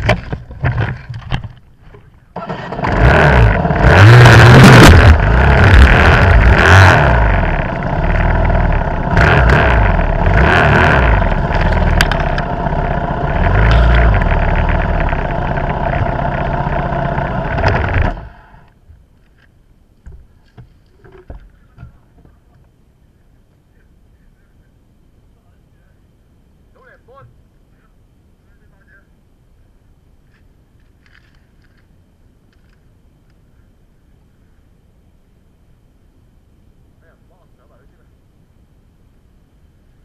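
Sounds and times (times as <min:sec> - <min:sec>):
dirt bike engine running: 0:02.4 - 0:18.7.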